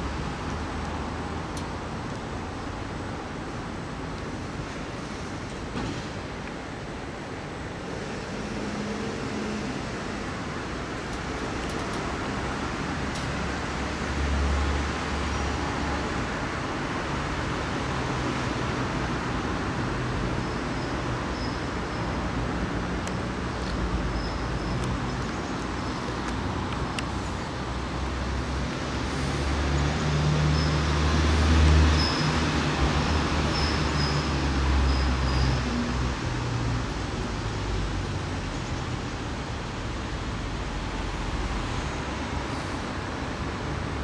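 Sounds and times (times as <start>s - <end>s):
road traffic rumble: 0.0s - 44.0s.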